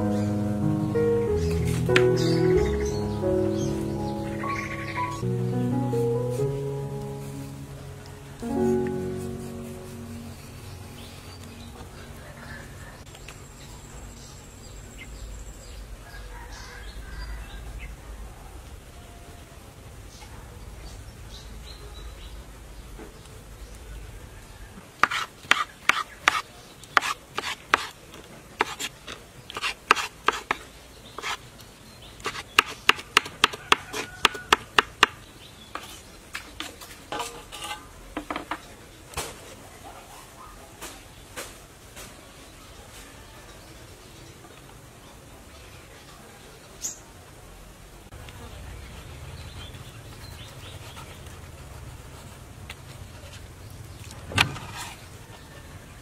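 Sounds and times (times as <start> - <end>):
knife chopping on wooden board: 25.0 - 26.4, 29.5 - 30.6, 32.3 - 35.2.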